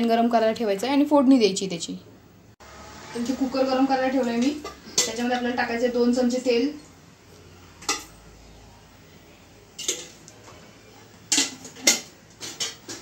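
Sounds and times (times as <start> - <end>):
metal spoon clinking on pot: 4.4 - 5.3, 7.8 - 8.2, 9.8 - 10.2, 11.3 - 13.0.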